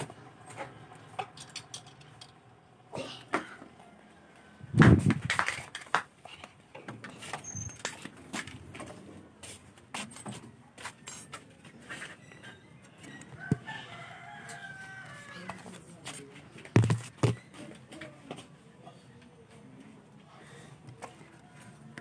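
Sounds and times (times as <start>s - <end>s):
rubbing thump on microphone: 16.8s - 17.4s.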